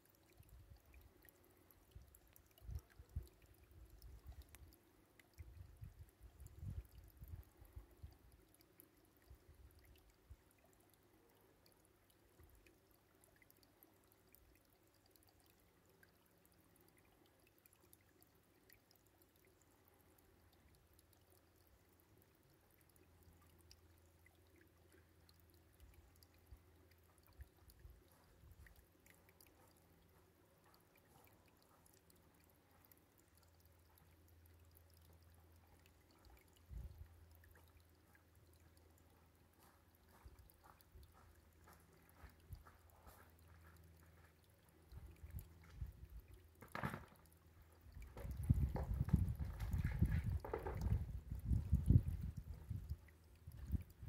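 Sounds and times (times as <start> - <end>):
soft low thumps: 48.0 - 53.0.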